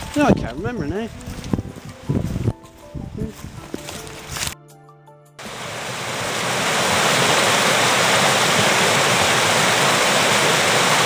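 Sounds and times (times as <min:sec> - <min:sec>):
water rushing over rocks: 0:05.4 - 0:11.0.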